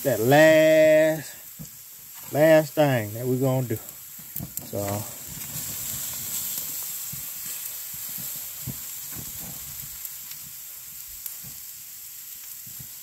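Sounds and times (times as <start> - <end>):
steaks sizzling on a grill: 0.0 - 13.0.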